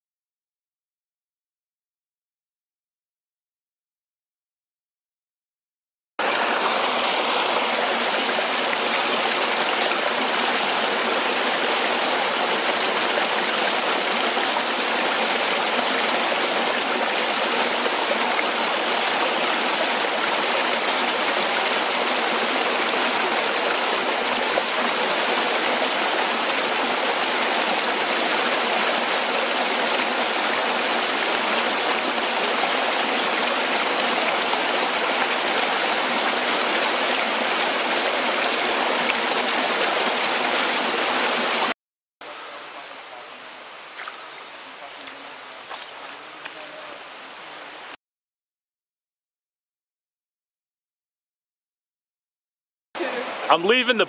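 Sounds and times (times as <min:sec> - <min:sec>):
stream cascading over rocks: 0:06.2 - 0:48.0, 0:53.0 - 0:54.0.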